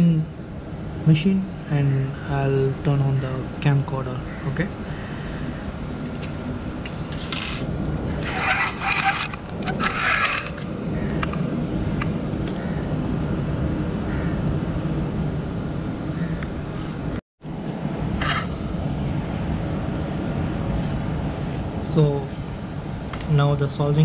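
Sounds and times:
steady low hum: 0.0s - 24.0s
handling noise rubbing and scraping: 6.9s - 11.4s, 18.2s - 18.5s.

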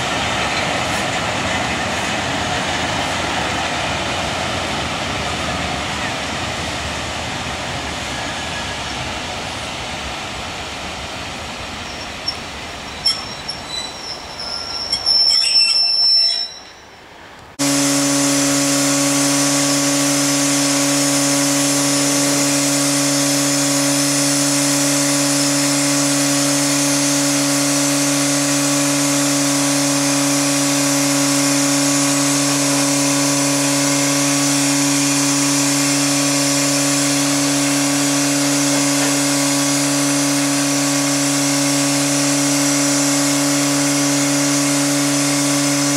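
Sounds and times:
steam hissing: 0.0s - 16.6s, 17.6s - 45.9s
steam locomotive rolling slowly: 0.0s - 45.9s
high wheel squeals: 11.8s - 45.9s.

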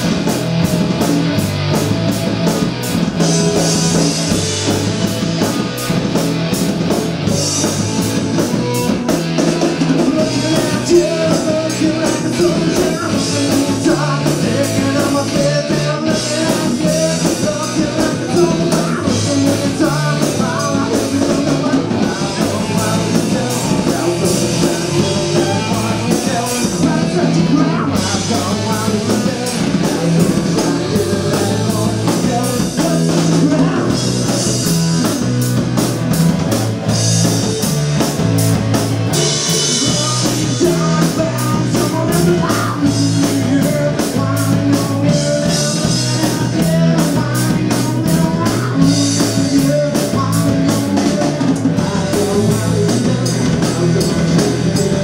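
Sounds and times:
bass guitar: 0.0s - 55.0s
drum kit beat: 0.0s - 55.0s
electric guitar: 0.0s - 55.0s
person singing: 7.3s - 35.2s, 39.1s - 55.0s.

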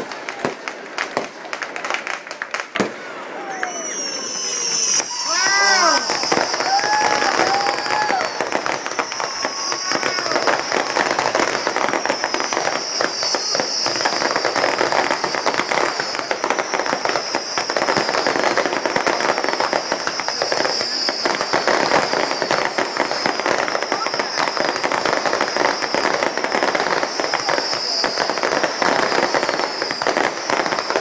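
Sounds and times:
fireworks crackling and popping: 0.0s - 31.0s.

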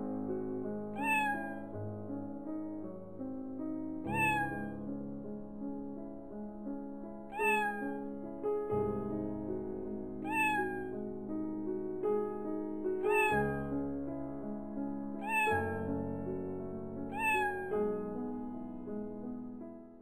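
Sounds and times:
cat meowing: 0.9s - 1.7s, 4.1s - 4.8s, 7.3s - 8.1s, 10.2s - 11.0s, 13.0s - 13.8s, 15.2s - 16.1s, 17.0s - 18.0s.

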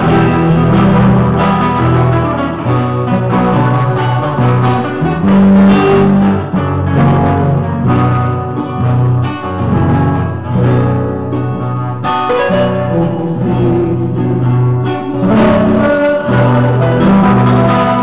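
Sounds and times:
acoustic guitar playing: 0.0s - 18.0s.

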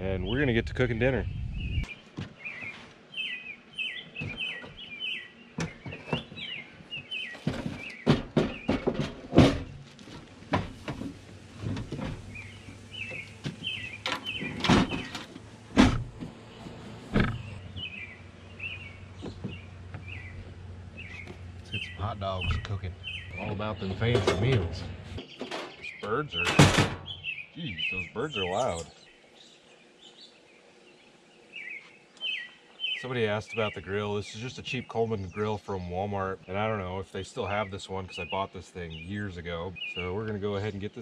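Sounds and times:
small birds chirping: 0.0s - 15.6s, 16.2s - 41.0s
metal grill knocks and scrapes: 7.3s - 12.4s, 13.1s - 17.5s, 23.4s - 27.2s
loud bangs: 26.4s - 27.2s.

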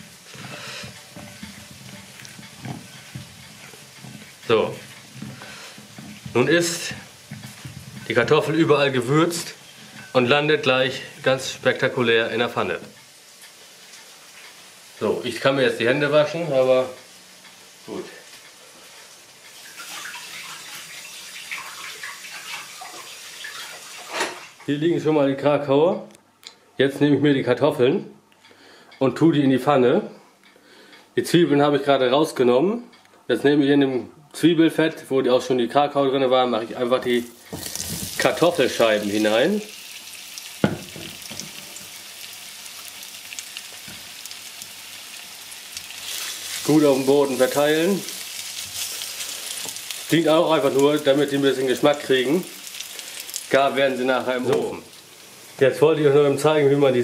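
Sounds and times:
potatoes sizzling in frying pan: 0.0s - 24.6s, 37.0s - 57.0s.

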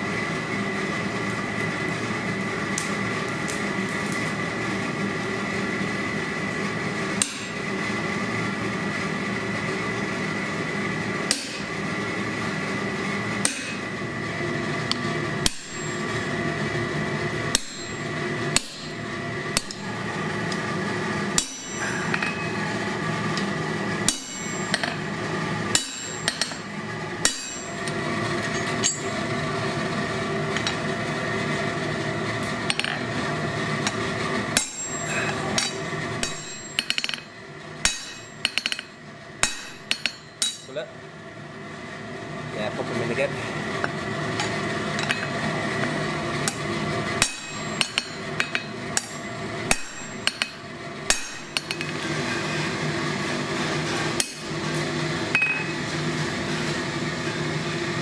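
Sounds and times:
steady hum: 0.0s - 58.0s
hammer striking steel on anvil: 7.2s - 7.6s, 11.3s - 11.8s, 13.4s - 13.9s, 14.9s - 16.2s, 17.5s - 19.0s, 19.6s - 20.0s, 21.4s - 22.6s, 24.0s - 25.0s, 25.7s - 29.2s, 32.7s - 33.0s, 33.9s - 40.8s, 47.2s - 52.0s, 54.2s - 54.8s, 55.4s - 55.8s.

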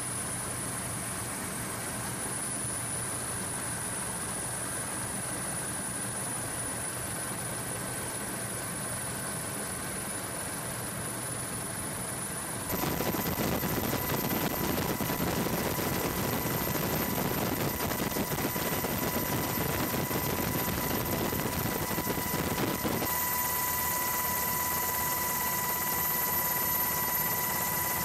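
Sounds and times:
thin high whine: 12.6s - 28.0s
aircraft engine and airflow: 12.7s - 28.0s.

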